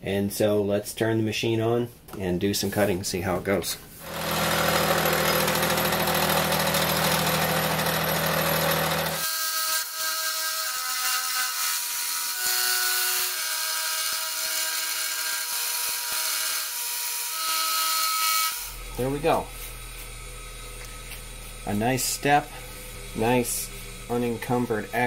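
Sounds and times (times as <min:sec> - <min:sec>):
motor hum: 0:04.0 - 0:09.2, 0:18.7 - 0:25.0
milling cutter cutting steel: 0:04.0 - 0:25.0.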